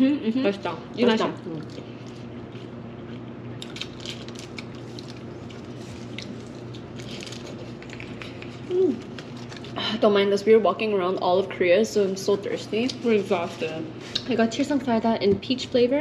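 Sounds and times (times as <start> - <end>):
low room hum: 0.0 - 16.0
people chewing: 1.1 - 9.9
person humming mm: 8.6 - 9.1.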